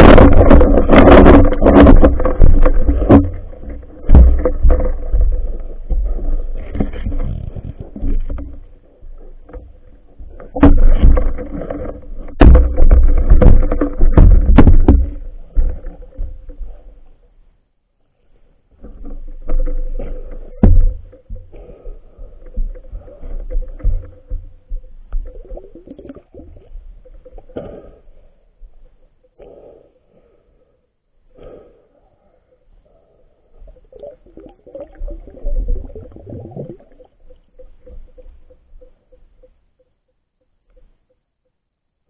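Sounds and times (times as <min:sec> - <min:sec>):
muffled underwater rumbling: 0:00.0 - 0:17.2, 0:18.8 - 0:29.2, 0:32.6 - 0:39.7
knocks and thuds on phone: 0:12.4 - 0:15.2.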